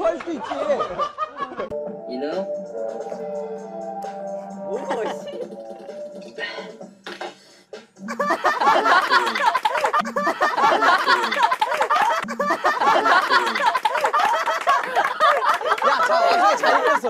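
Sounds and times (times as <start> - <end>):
young men laughing: 0.0 - 1.8, 4.7 - 5.8, 8.0 - 17.0.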